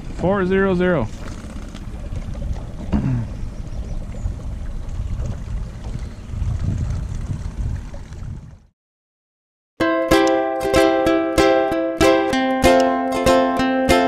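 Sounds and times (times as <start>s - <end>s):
water lapping at kayak: 0.0s - 8.7s
wind rumbling on microphone: 0.0s - 8.7s.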